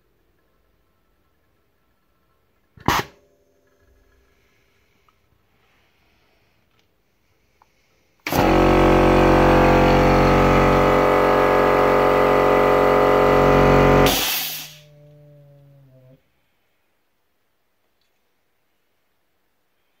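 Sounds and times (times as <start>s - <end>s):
hydraulic pump whining: 8.2s - 14.8s
faint hum: 14.6s - 20.0s.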